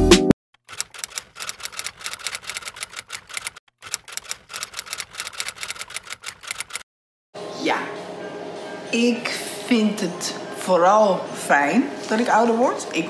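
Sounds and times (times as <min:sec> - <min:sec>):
typewriter key clacks: 0:00.7 - 0:06.8.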